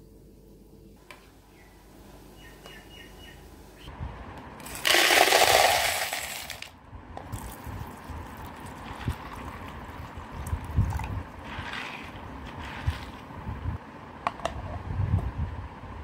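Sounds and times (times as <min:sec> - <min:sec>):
chickpeas clattering into plastic bowl: 0:04.6 - 0:06.7.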